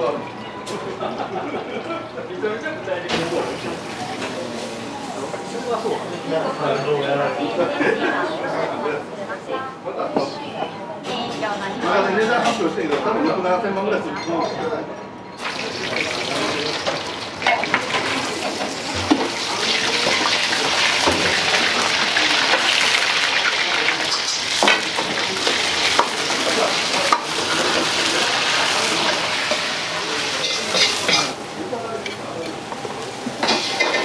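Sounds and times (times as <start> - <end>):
pan sizzling: 15.4 - 31.5.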